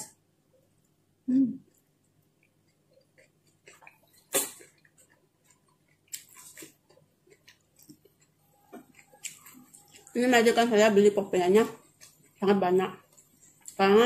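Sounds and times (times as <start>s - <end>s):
person chewing with mouth smacks: 1.7s - 10.2s.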